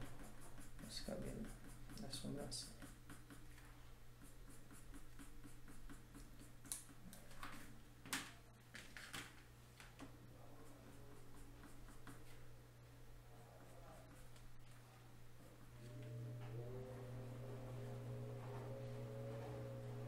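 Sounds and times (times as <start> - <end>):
pencil scratching on paper: 0.0 - 3.6, 4.2 - 6.9, 10.6 - 12.4, 13.5 - 14.5
low steady hum: 9.6 - 20.0.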